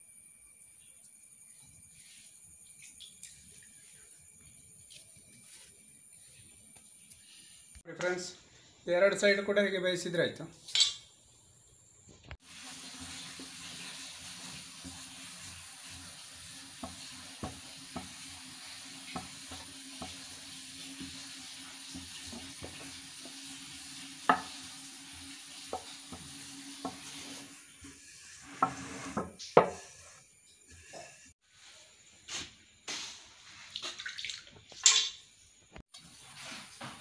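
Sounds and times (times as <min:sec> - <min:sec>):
flatbread sizzling on griddle: 0:12.3 - 0:33.7, 0:35.9 - 0:37.0
rolling pin on dough: 0:16.7 - 0:23.5, 0:24.2 - 0:31.3.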